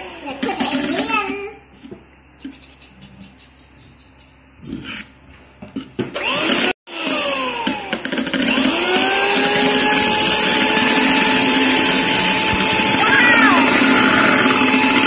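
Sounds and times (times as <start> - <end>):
electric hand mixer whirring: 6.2 - 15.0.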